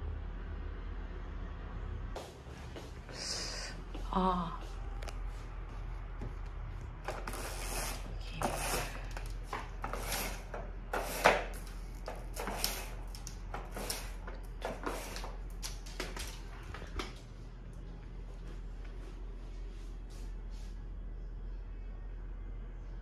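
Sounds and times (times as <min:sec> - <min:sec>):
roller blind rattling and scraping: 0:07.0 - 0:16.5.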